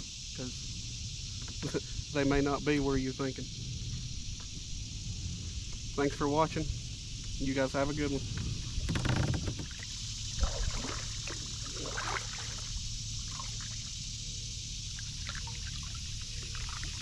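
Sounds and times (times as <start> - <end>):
water splashing and trickling: 8.6 - 17.0
kayak paddle dipping into water: 9.5 - 13.9, 15.0 - 17.0.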